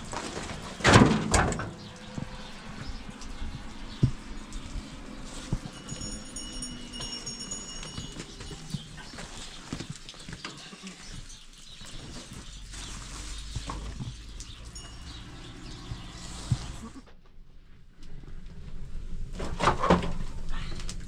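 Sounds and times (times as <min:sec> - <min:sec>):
farm animals knocking and clopping: 0:00.0 - 0:16.9
thin high tone: 0:05.6 - 0:08.7.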